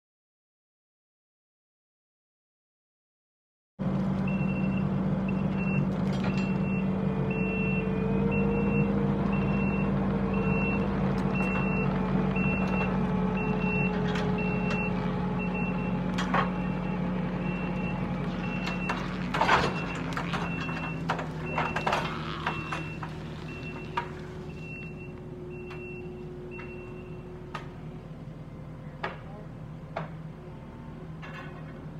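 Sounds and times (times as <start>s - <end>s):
diesel engine running under load: 3.8s - 31.9s
reversing alarm beeping: 4.3s - 27.5s.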